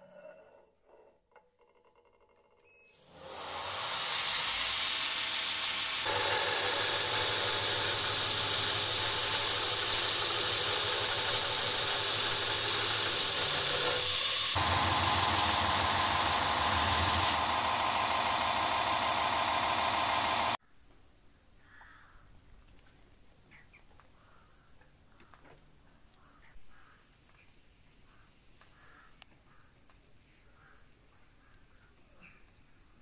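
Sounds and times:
belt grinder motor hum: 0:03.0 - 0:20.6
steel grinding hiss: 0:03.0 - 0:20.6.

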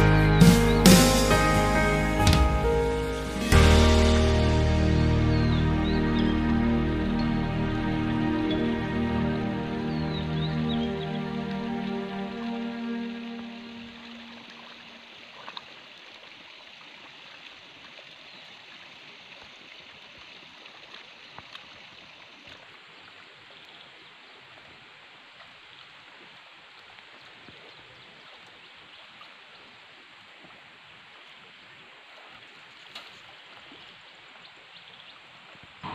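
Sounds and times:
water trickling: 0:05.9 - 0:35.9
faint splashes in muddy water: 0:14.2 - 0:35.9.

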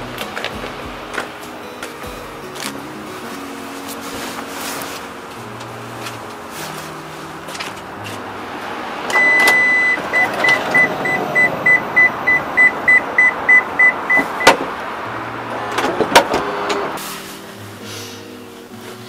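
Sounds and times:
electronic beeper: 0:09.1 - 0:14.6.

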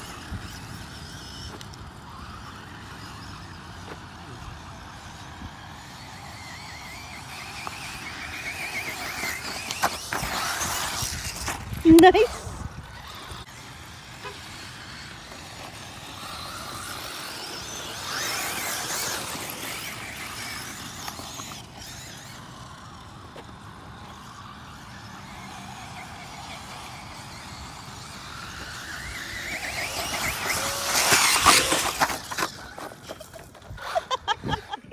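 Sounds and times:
toy car motor whining: 0:00.0 - 0:34.9
tyres clattering on loose dirt: 0:06.9 - 0:11.8, 0:24.2 - 0:34.2.

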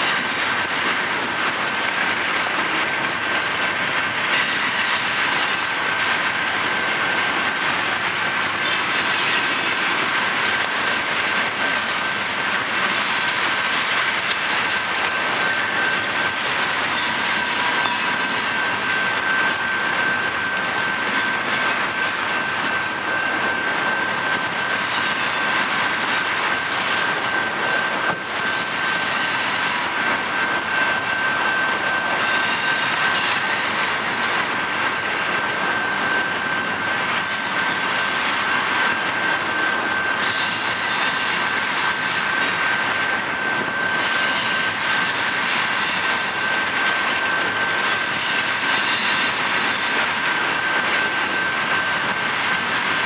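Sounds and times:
train wheels clattering on rails: 0:00.0 - 0:53.0
high-pitched squeal: 0:15.2 - 0:26.4.

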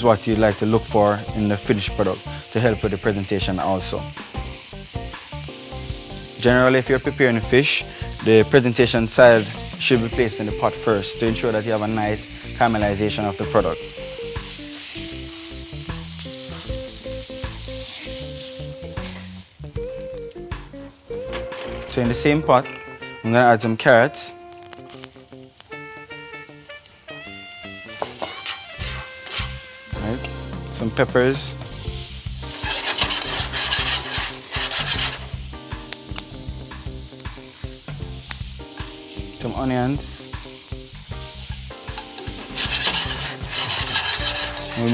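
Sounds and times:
oil sizzling in a frying pan: 0:00.0 - 0:21.2, 0:24.4 - 0:44.9
background music: 0:00.0 - 0:44.9
metal tongs moving in pan: 0:28.0 - 0:30.2, 0:32.5 - 0:35.4, 0:41.4 - 0:44.9.

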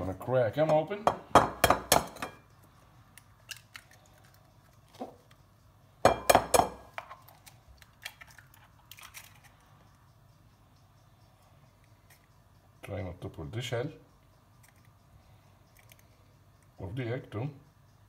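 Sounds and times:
eggshells cracking: 0:03.1 - 0:05.4, 0:06.9 - 0:09.5.

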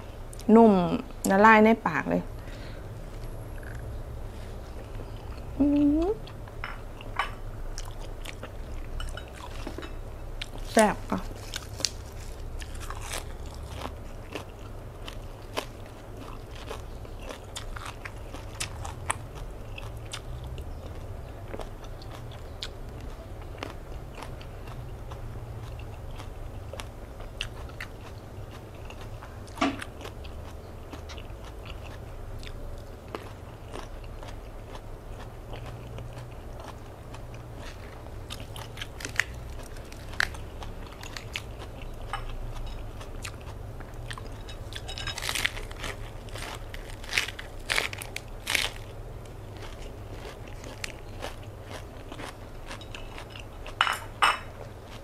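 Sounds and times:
chewing and crunching lettuce: 0:10.4 - 0:53.8.

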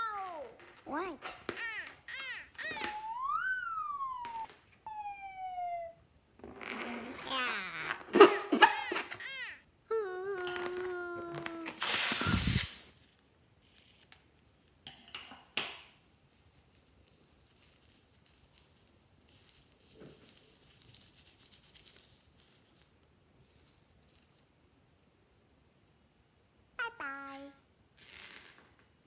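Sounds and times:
air hissing out of balloon: 0:11.7 - 0:13.0
soft rustling: 0:16.0 - 0:25.1.

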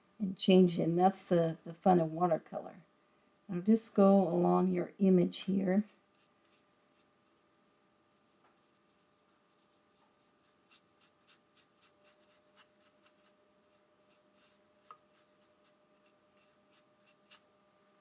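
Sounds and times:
faint steady hum: 0:00.0 - 0:18.0
brush stroking across paper: 0:05.5 - 0:07.4, 0:08.5 - 0:17.5.

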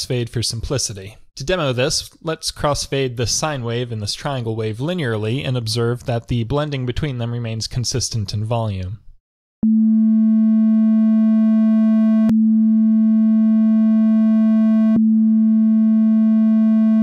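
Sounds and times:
synthesized low buzzy tone: 0:09.6 - 0:17.0.

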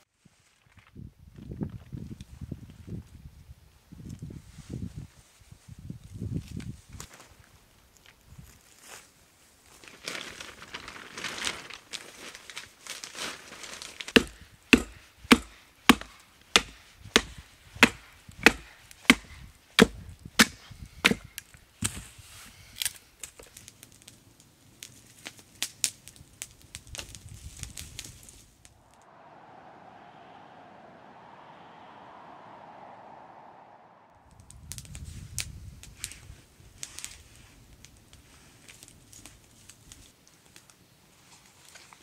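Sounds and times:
baton knocking on wood: 0:14.2 - 0:21.2.

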